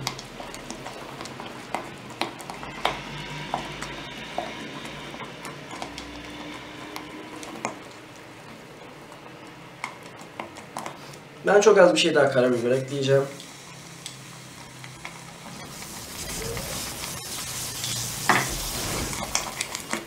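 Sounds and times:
whisk scraping saucepan: 0:15.2 - 0:20.0.

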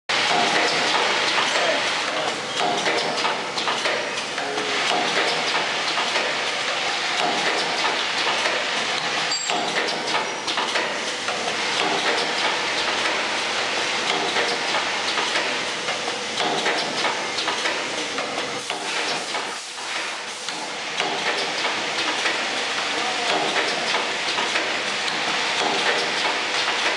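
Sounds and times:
machine clicks and clacks: 0:00.1 - 0:26.9.

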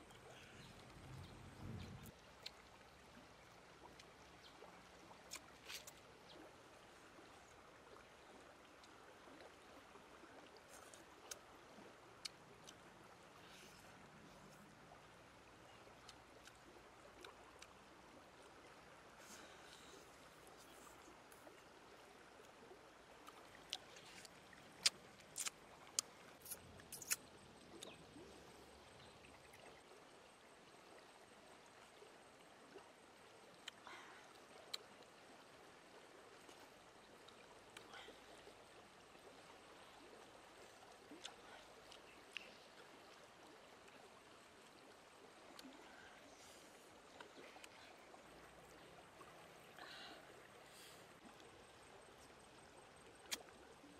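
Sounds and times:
shallow stream running: 0:00.0 - 0:53.9.

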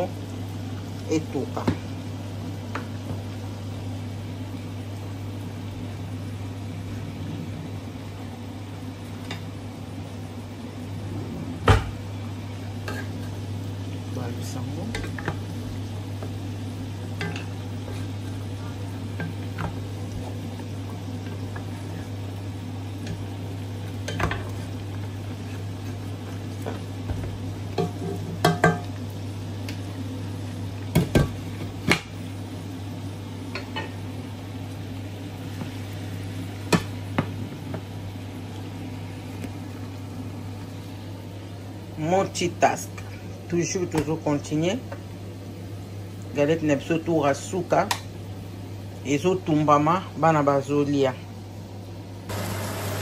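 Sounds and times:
steady low hum: 0:00.0 - 0:53.0
beef sizzling in pot: 0:11.6 - 0:41.6, 0:52.3 - 0:53.0.

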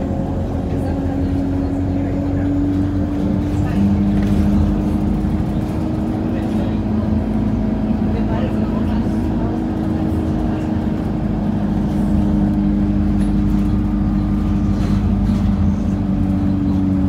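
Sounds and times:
bus engine drone: 0:00.0 - 0:17.0
road noise: 0:00.0 - 0:17.0.

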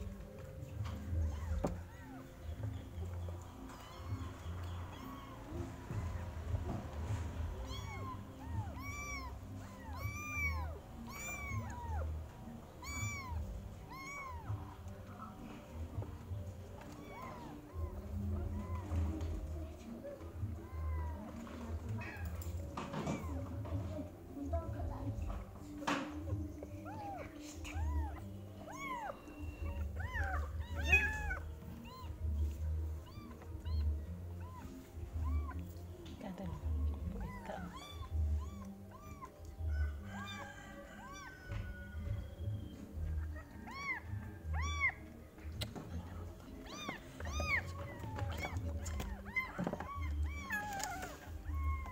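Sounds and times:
kittens meowing: 0:00.0 - 0:06.4, 0:07.4 - 0:24.1, 0:24.8 - 0:51.9.

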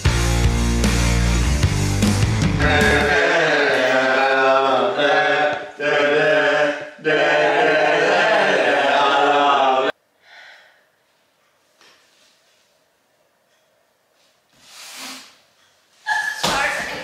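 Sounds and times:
men chanting loudly: 0:02.6 - 0:09.9.

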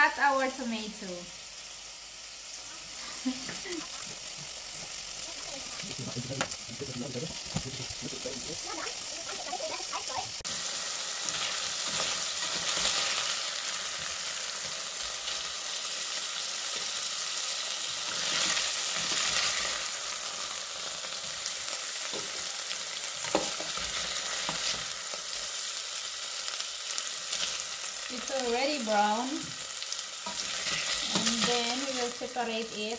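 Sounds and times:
chicken sizzling in hot oil: 0:00.0 - 0:32.9
spatula scraping a pot: 0:30.2 - 0:31.5.

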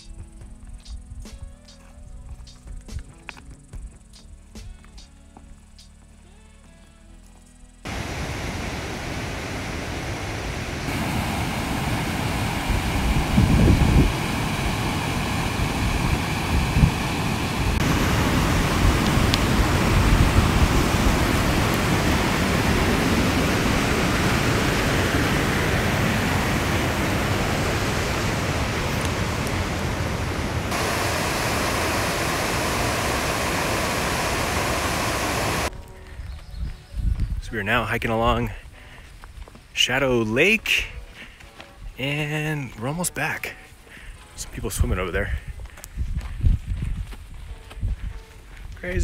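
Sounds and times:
creek rushing over rocks: 0:07.9 - 0:35.7.

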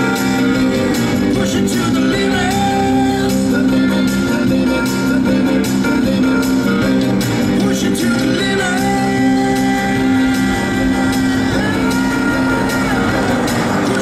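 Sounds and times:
guitar music: 0:00.0 - 0:14.0.

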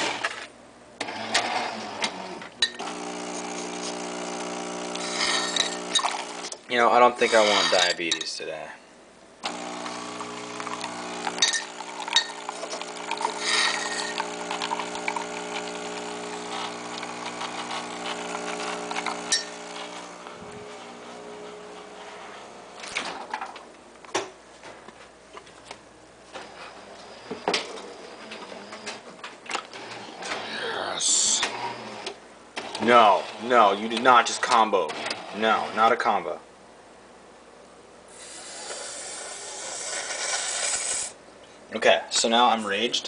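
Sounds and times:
coffee machine motor humming: 0:01.0 - 0:07.8, 0:09.4 - 0:23.2.

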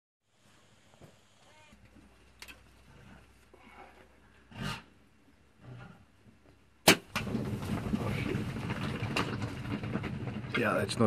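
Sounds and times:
bow shot crack: 0:06.8 - 0:07.3
hooves thundering on dry ground: 0:07.2 - 0:11.0.

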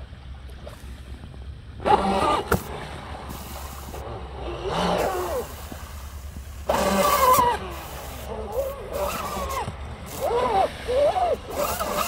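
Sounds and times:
electric motor whining: 0:06.6 - 0:12.0.

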